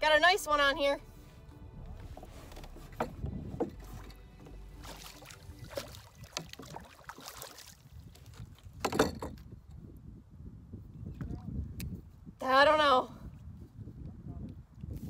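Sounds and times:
fishing gear knocking on canoe: 2.1 - 7.3, 8.8 - 9.4.

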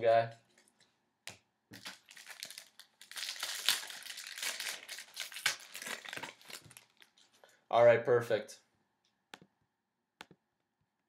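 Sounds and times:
plastic wrapper crinkling: 1.7 - 7.4.

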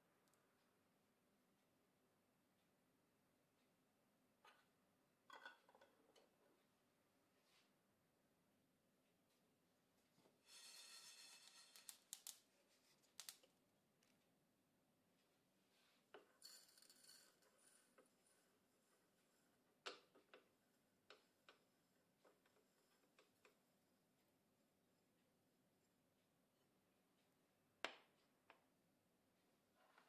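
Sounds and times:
seeds rattling into steel cup: 10.5 - 12.4, 16.4 - 17.9.

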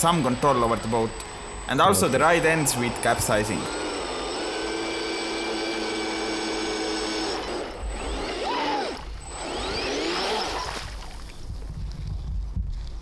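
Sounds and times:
electric motors whining: 0.0 - 11.5.

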